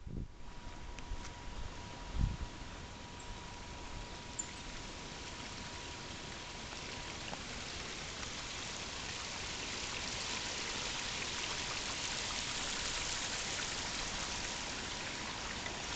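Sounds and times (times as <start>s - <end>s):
creek water rushing over rocks: 4.7s - 15.9s.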